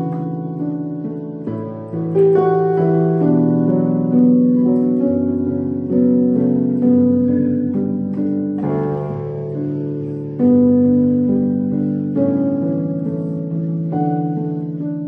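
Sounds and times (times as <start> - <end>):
piano music: 0.0 - 15.0.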